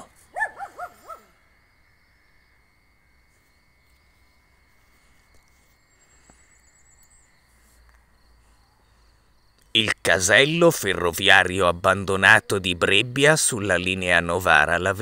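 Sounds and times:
faint steady high tone: 0.0s - 15.0s
dog yipping: 0.4s - 1.3s.

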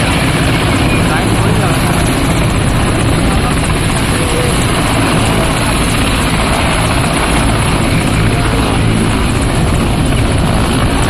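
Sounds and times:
helicopter turbine and rotor din: 0.0s - 11.0s.

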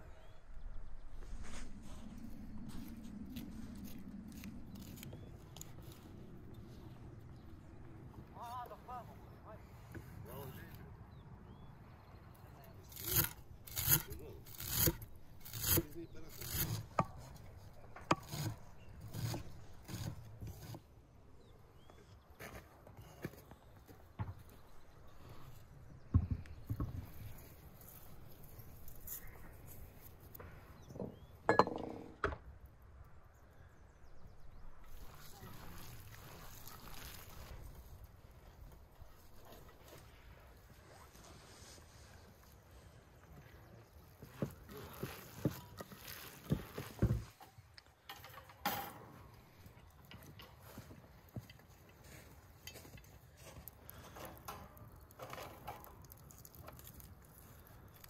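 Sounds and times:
membrane rustling: 34.9s - 42.9s, 44.0s - 48.6s.

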